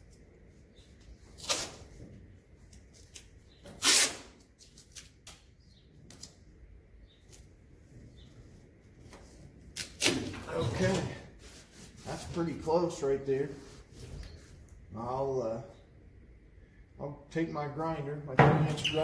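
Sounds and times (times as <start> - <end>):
hands tapping and rustling tape: 0.0 - 6.5
tape tearing off roll: 1.3 - 2.0, 3.0 - 5.4, 9.7 - 11.7.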